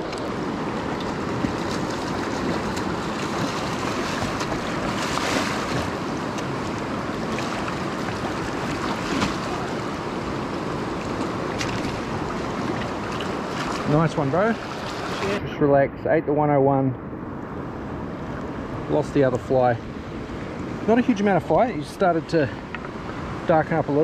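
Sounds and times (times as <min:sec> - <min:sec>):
river running over stones: 0:00.0 - 0:15.4.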